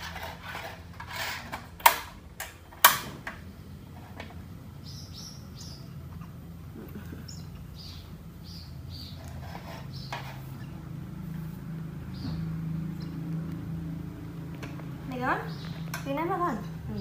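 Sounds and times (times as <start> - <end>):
small birds chirping: 3.4 - 17.0.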